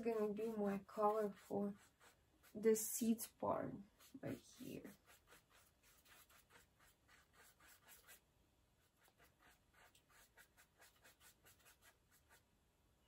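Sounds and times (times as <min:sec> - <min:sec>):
paintbrush dabbing on paper: 0:00.0 - 0:08.2, 0:08.8 - 0:12.4.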